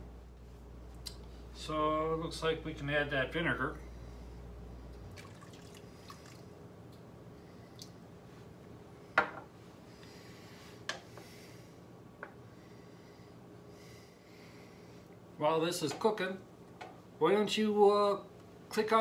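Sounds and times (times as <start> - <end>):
faint steady hum: 0.0 - 19.0
liquid trickling into pot: 5.1 - 6.5.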